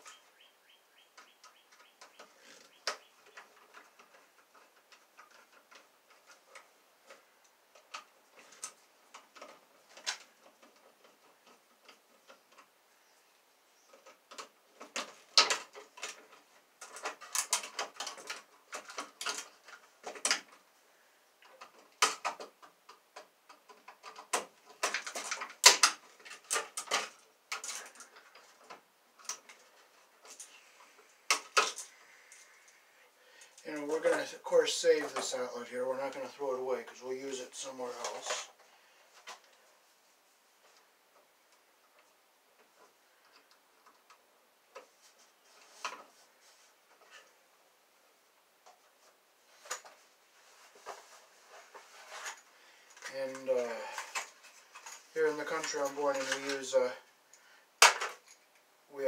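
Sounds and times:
wires being handled: 1.7 - 12.8, 13.9 - 20.7, 21.4 - 34.2, 48.6 - 58.7.

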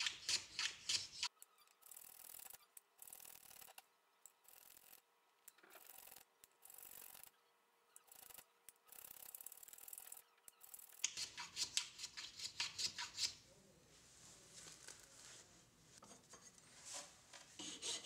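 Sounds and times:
wood scraping strokes: 14.1 - 18.0.

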